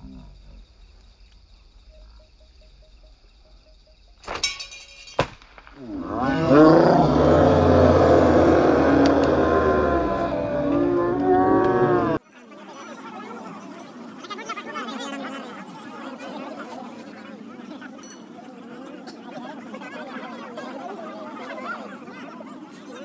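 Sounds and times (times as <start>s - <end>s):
crowd of men shouting and cheering: 7.3s - 12.2s.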